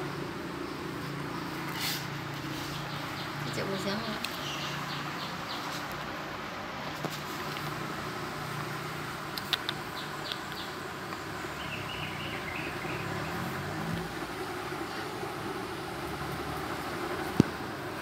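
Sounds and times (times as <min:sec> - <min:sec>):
background hum and hiss: 0:00.0 - 0:18.0
sharp clicks: 0:09.3 - 0:11.2.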